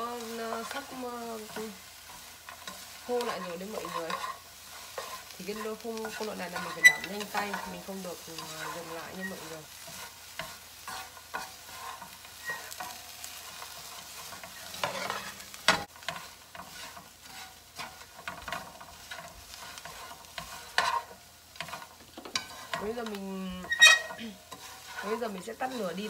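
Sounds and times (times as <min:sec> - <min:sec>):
chopsticks scraping a frying pan: 0:00.0 - 0:26.0
light frying sizzle: 0:00.0 - 0:26.0.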